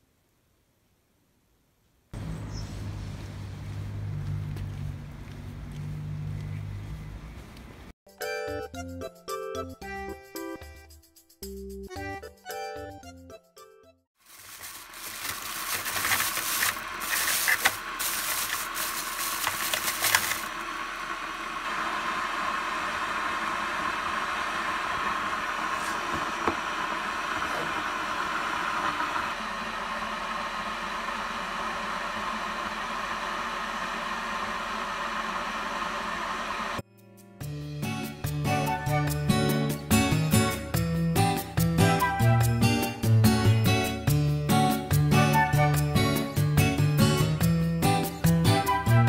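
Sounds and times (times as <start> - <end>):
plastic bag rustling: 14.2 - 20.6.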